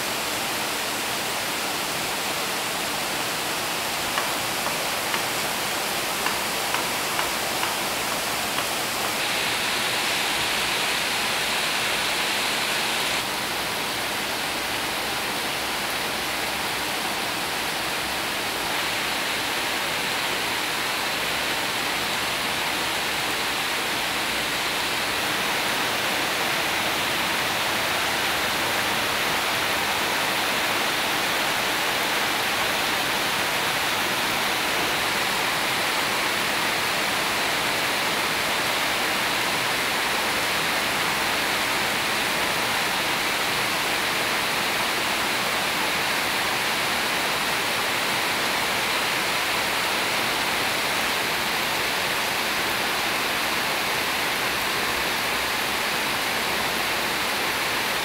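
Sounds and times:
heavy rain pouring: 0.0s - 58.0s.

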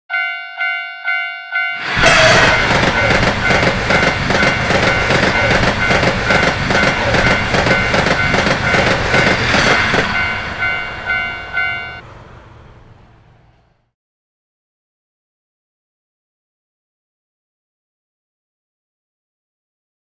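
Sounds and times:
railroad crossing bell ringing: 0.1s - 12.0s
train wheels clattering on rails: 1.8s - 12.0s.

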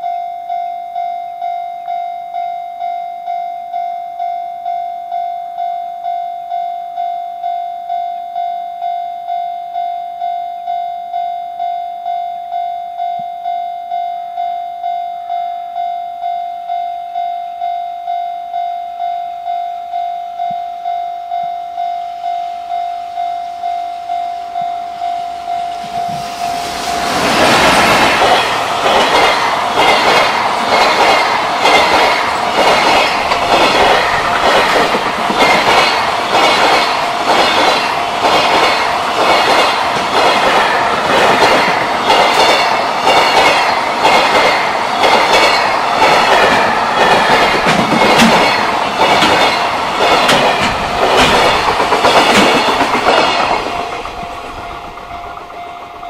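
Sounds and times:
level crossing warning bell: 0.0s - 27.1s, 28.1s - 56.0s
electric locomotive passing: 22.2s - 56.0s
train wheels clattering over rail joints: 25.8s - 56.0s.

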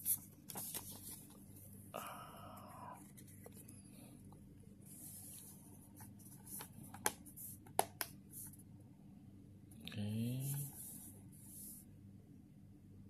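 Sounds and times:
paper rustling: 0.0s - 1.4s.

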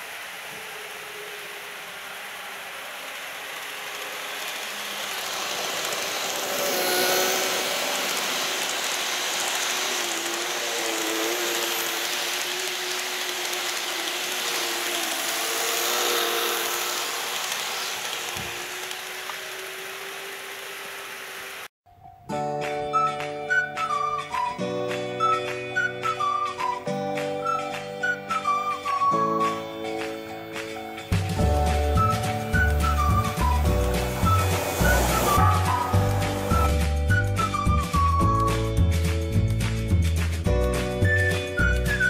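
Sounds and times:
model train motors humming: 0.0s - 21.7s, 31.2s - 38.2s
wheels rattling on rails: 0.0s - 21.7s, 27.4s - 42.0s.

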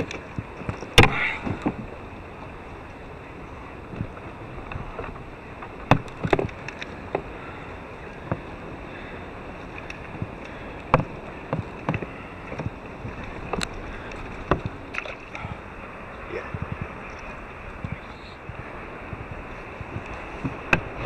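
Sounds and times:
knocks and clicks of fishing gear: 0.0s - 1.9s, 3.9s - 7.3s, 8.2s - 8.5s, 9.7s - 15.4s, 17.8s - 21.0s
wind and water hiss: 0.0s - 21.0s.

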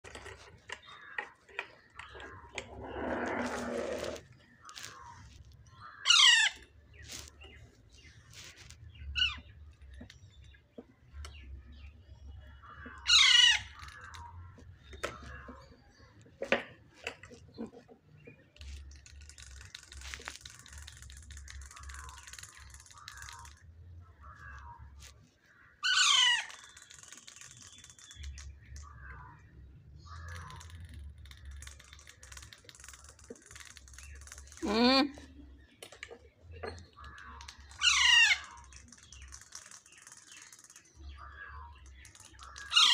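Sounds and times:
parakeet chicks calling harshly: 5.9s - 7.3s, 12.7s - 14.3s, 25.8s - 28.4s, 37.0s - 42.9s.

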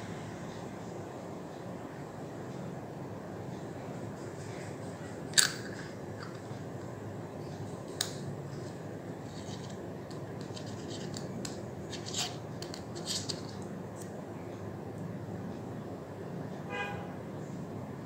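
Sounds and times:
scratchy rubbing: 8.6s - 9.8s, 10.4s - 13.6s.

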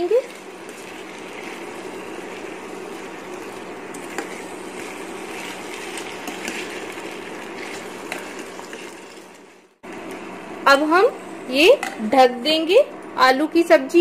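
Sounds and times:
spoon stirring in a pan: 0.0s - 9.6s
potatoes sizzling in a pan: 0.0s - 9.8s.

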